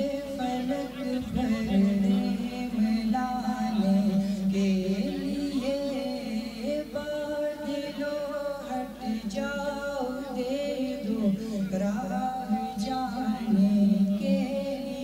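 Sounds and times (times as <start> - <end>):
man singing unaccompanied: 0.0 - 15.0.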